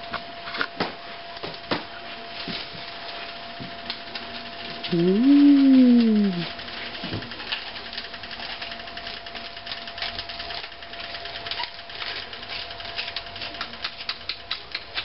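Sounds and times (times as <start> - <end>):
falling howl-like voice: 4.9 - 6.5.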